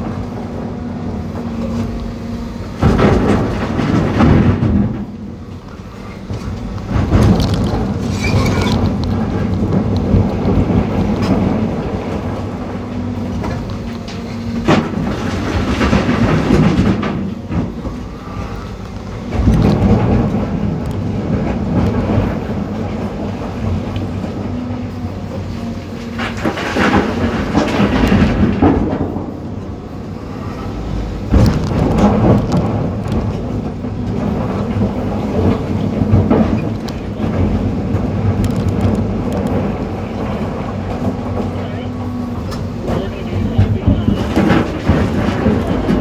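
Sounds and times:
excavator diesel engine and hydraulics: 0:00.0 - 0:46.0
rocks spilling into truck: 0:02.8 - 0:05.3, 0:06.2 - 0:12.4, 0:31.2 - 0:41.6.

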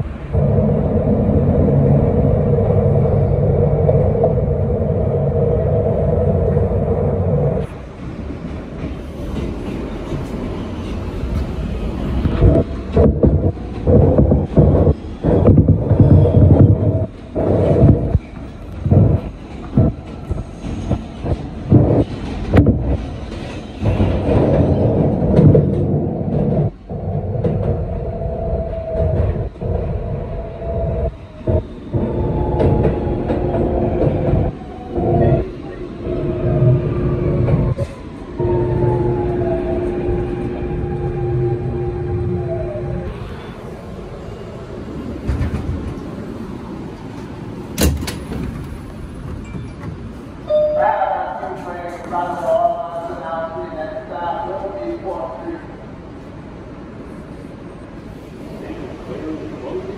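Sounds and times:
steady whine: 0:00.0 - 0:07.6, 0:25.9 - 0:43.2
subway train rumble: 0:00.0 - 0:59.9.

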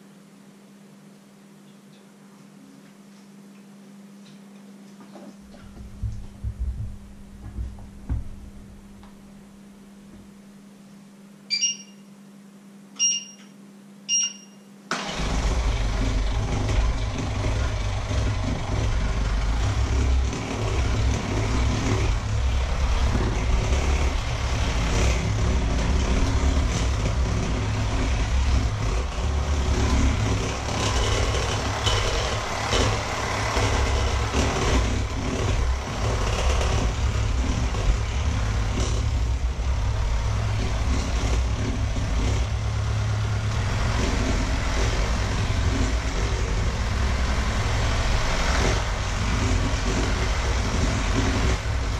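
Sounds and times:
short electronic beeps: 0:11.5 - 0:12.1, 0:13.0 - 0:13.5, 0:14.1 - 0:14.7
electric hand mixer whisking: 0:15.0 - 0:51.9.

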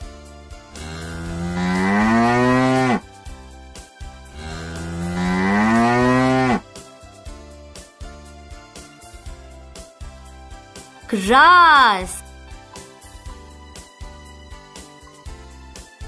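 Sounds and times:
cow mooing: 0:00.8 - 0:03.0, 0:04.4 - 0:06.6.

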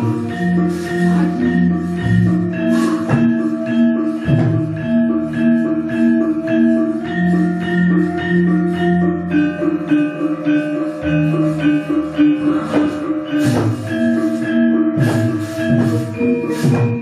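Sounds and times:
gamelan ensemble playing: 0:00.0 - 0:17.0
sharp knocks: 0:12.7 - 0:14.1, 0:15.0 - 0:17.0.

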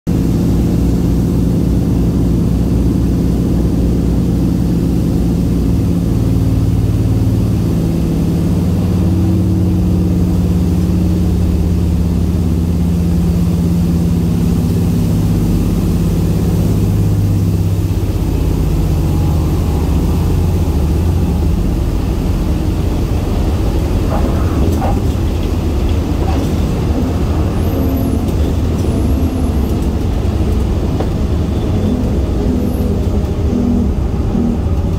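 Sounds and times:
propeller engines droning: 0:00.1 - 0:34.9
tyres rolling on runway: 0:17.8 - 0:34.9.

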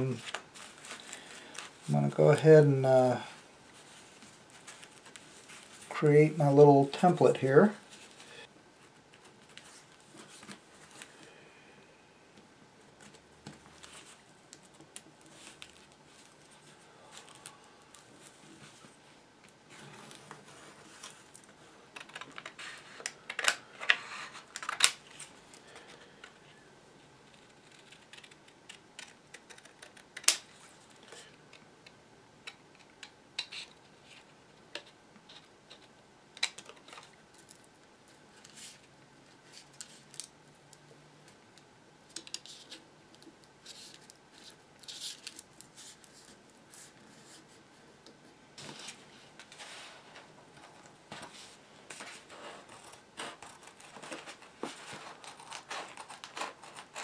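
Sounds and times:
paper rustling: 0:00.1 - 0:01.9, 0:03.7 - 0:06.0, 0:43.6 - 0:47.6, 0:48.6 - 0:57.0.

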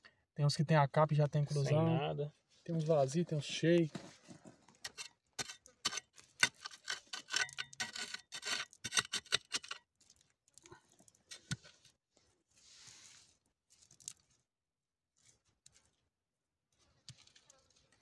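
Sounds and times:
soil and small stones falling: 0:03.8 - 0:12.0, 0:13.7 - 0:14.5, 0:16.8 - 0:18.0
gloved hands scraping clay and gravel: 0:03.9 - 0:10.4, 0:11.2 - 0:14.4.

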